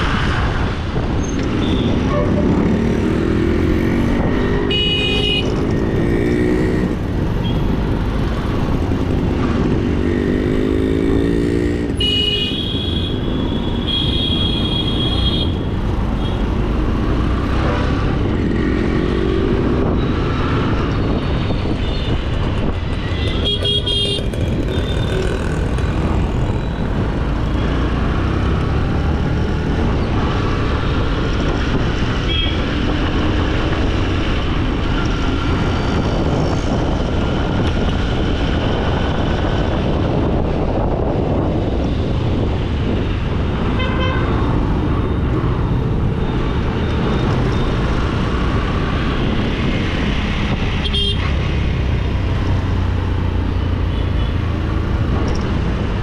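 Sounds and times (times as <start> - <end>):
road traffic rumble: 0.0 - 56.0
vehicle horns honking: 1.6 - 2.6, 4.6 - 5.6, 12.0 - 15.6, 23.1 - 24.3, 32.3 - 32.6, 43.7 - 44.4, 50.8 - 51.3.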